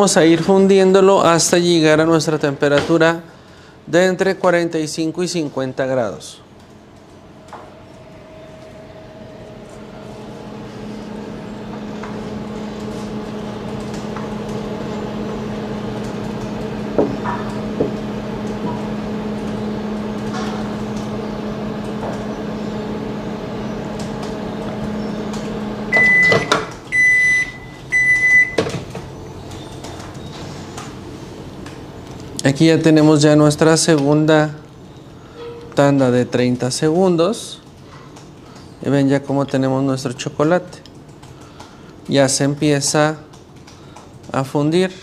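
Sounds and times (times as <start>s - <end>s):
microwave oven humming: 0.0s - 45.0s
microwave beeping: 6.6s - 32.0s.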